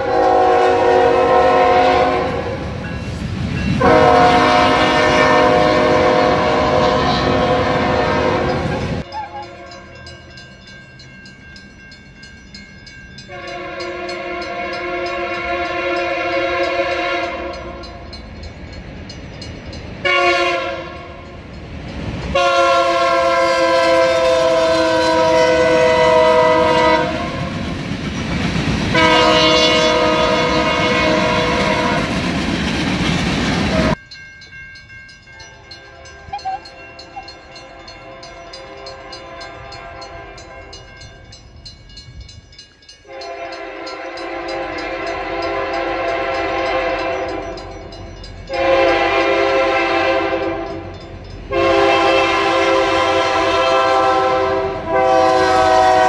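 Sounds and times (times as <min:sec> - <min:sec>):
locomotive air horn blasts: 0:00.0 - 0:02.8, 0:03.8 - 0:10.0, 0:13.3 - 0:18.0, 0:20.0 - 0:21.2, 0:22.3 - 0:27.5, 0:28.9 - 0:32.2, 0:35.9 - 0:40.9, 0:43.0 - 0:47.6, 0:48.5 - 0:50.9, 0:51.5 - 0:56.0
train rail noise: 0:00.0 - 0:56.0.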